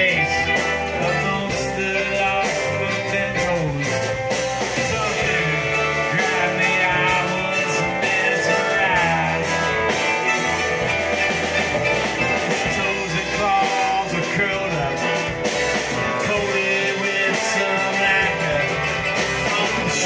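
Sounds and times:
drum kit: 0:00.0 - 0:20.0
electric guitars: 0:00.0 - 0:20.0
person singing: 0:00.0 - 0:20.0
upright bass: 0:00.0 - 0:20.0.

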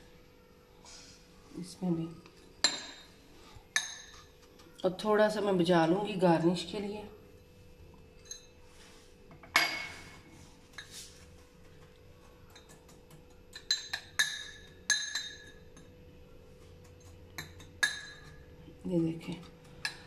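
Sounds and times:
spoon clinking glass bowls: 0:02.4 - 0:04.4, 0:08.1 - 0:08.6, 0:12.3 - 0:16.0, 0:16.8 - 0:18.5.

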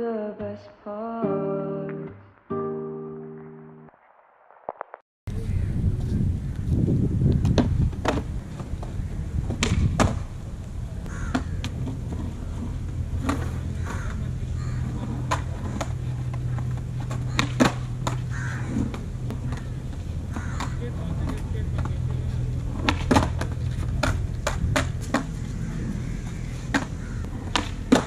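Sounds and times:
skateboard clacking on ground: 0:11.3 - 0:25.4, 0:26.7 - 0:28.0.

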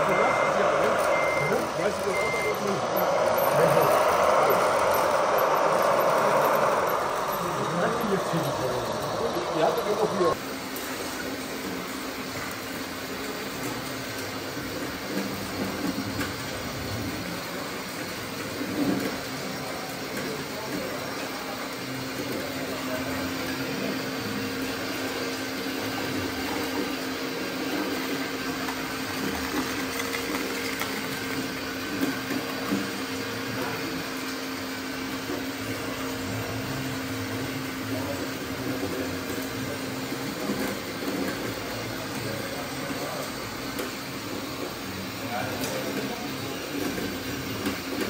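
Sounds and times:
small electric motors humming: 0:00.0 - 0:10.4.

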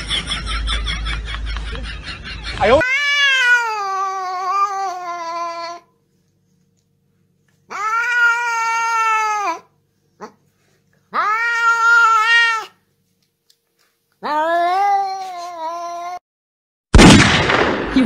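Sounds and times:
cat meowing in long yowls: 0:02.8 - 0:05.8, 0:07.7 - 0:09.7, 0:11.1 - 0:12.8, 0:14.2 - 0:16.2.

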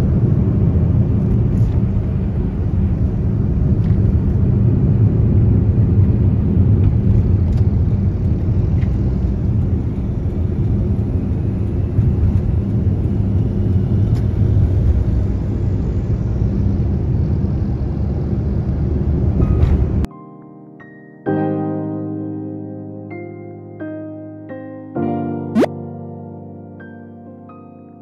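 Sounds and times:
vehicle road and engine rumble: 0:00.0 - 0:20.1.

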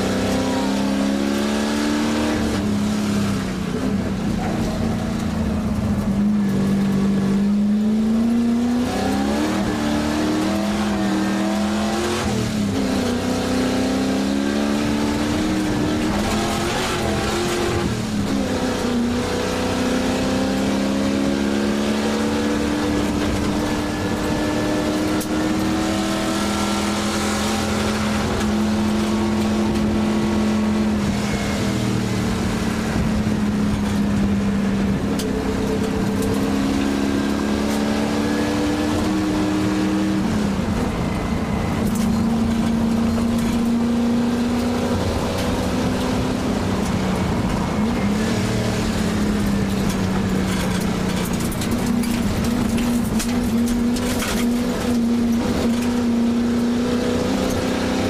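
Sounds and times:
car engine accelerating: 0:00.0 - 0:58.0.

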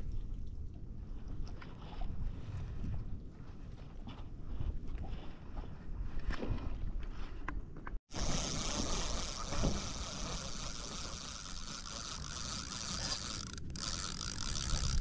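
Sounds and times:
fishing reel gears whirring: 0:08.1 - 0:15.0.

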